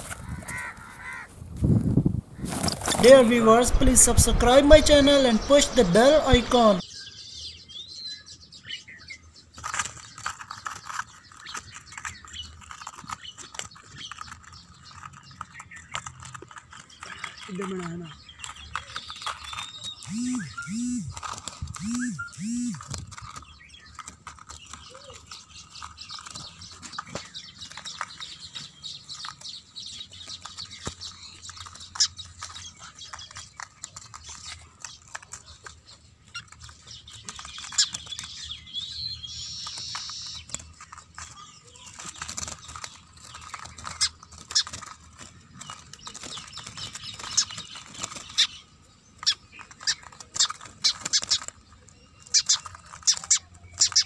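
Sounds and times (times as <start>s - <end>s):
small birds chirping: 2.3s - 54.0s.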